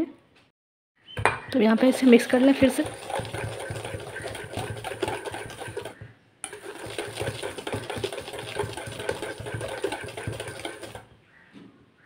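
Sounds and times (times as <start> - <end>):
whisk clicking in metal bowl: 1.9 - 11.1.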